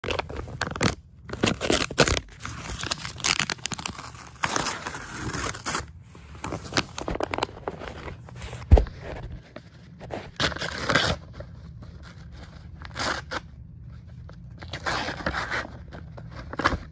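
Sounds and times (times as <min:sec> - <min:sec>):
plastic packaging crinkling: 0:00.0 - 0:11.4.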